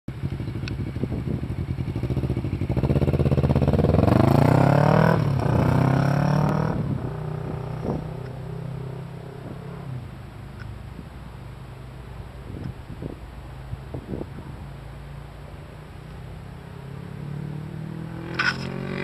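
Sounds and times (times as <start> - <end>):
motorcycle engine revving: 0.1 - 10.2, 15.8 - 19.0.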